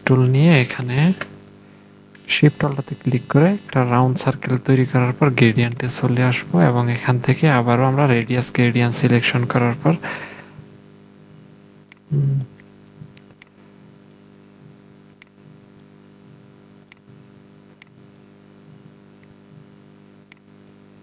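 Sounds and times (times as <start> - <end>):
low electrical hum: 0.0 - 21.0
computer mouse clicks: 16.8 - 17.1.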